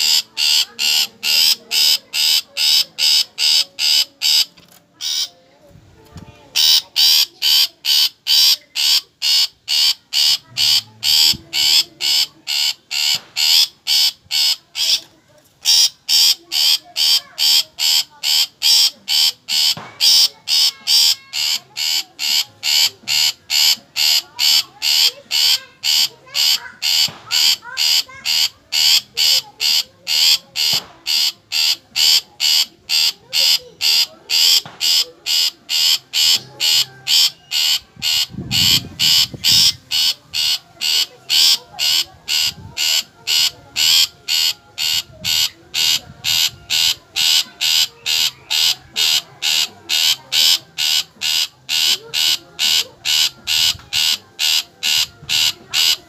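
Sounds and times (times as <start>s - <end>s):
bird giving harsh repeated calls: 0.0s - 5.4s, 6.6s - 56.0s.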